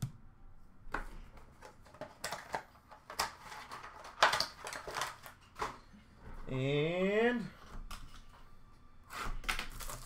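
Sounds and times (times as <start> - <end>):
cards and packaging handled: 0.9 - 6.0, 9.1 - 10.0.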